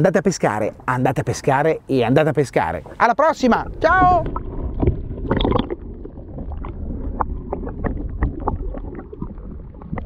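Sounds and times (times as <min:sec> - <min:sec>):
muffled water rumble: 0:02.5 - 0:10.0.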